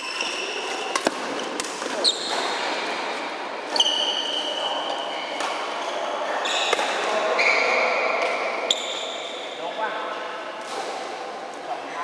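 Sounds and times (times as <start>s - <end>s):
shoe squeaks: 0.0s - 2.5s, 3.7s - 8.1s
racket hitting shuttlecock: 0.6s - 3.0s, 6.6s - 7.0s.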